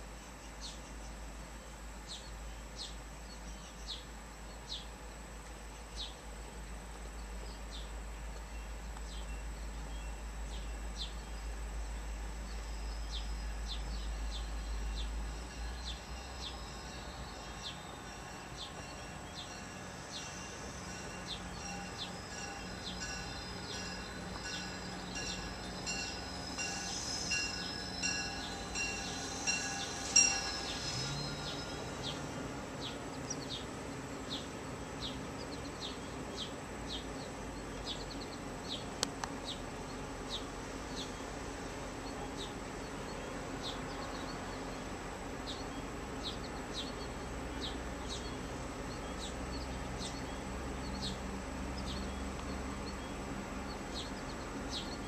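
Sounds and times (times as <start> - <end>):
train arriving: 6.4 - 55.0
faint bird chirps: 7.1 - 41.3
bell ringing: 15.4 - 32.3.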